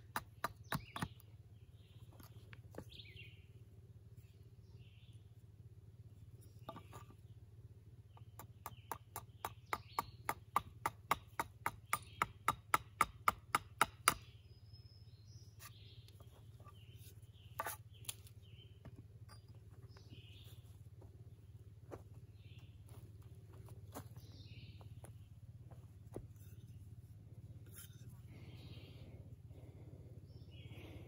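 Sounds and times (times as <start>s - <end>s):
tool strikes on wood: 0.0s - 1.2s, 8.2s - 14.3s.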